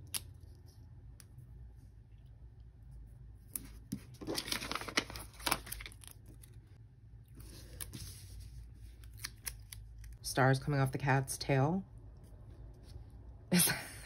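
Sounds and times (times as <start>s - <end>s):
paper rustling: 3.5s - 6.6s.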